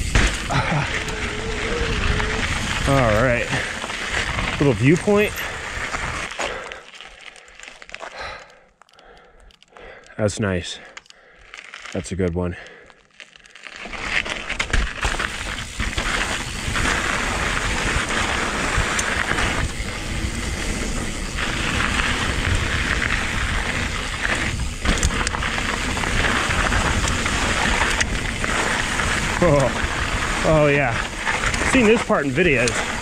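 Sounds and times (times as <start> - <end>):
bike knocking over rough ground: 0.0 - 6.6, 13.8 - 33.0
bike tyres rolling over gravel: 0.0 - 33.0.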